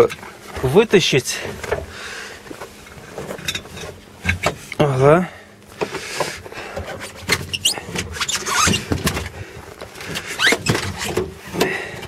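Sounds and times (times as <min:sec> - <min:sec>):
wheel knocks and thumps: 0:05.8 - 0:12.0
tyre scraping and squeaking on metal: 0:06.7 - 0:11.7.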